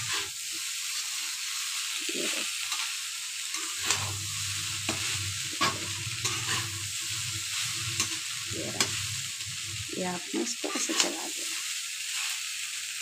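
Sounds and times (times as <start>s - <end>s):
food sizzling in a pan: 0.0s - 13.0s
spatula scraping and knocking pan: 3.6s - 9.8s.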